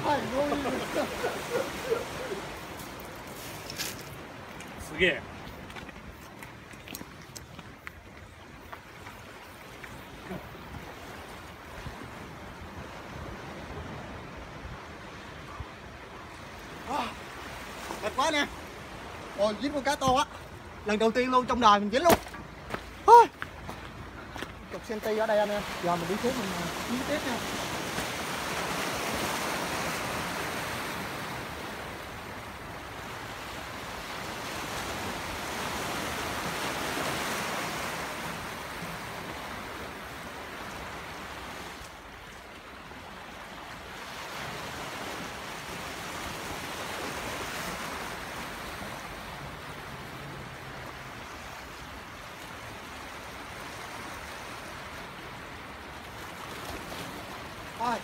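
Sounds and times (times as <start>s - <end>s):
heavy surf breaking: 0.0s - 5.4s, 10.2s - 41.7s.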